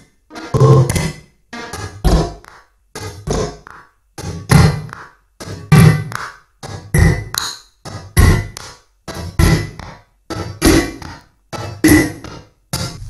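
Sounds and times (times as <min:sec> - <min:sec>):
music from a record skipping: 0:00.0 - 0:07.5, 0:10.4 - 0:13.0.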